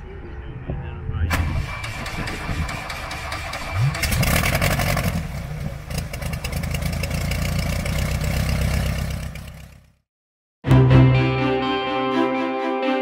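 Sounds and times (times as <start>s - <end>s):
piston aircraft engine running: 1.3s - 9.9s.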